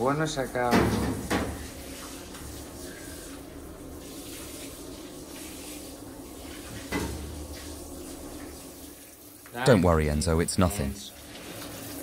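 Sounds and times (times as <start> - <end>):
water running into tub: 0.1 - 12.0.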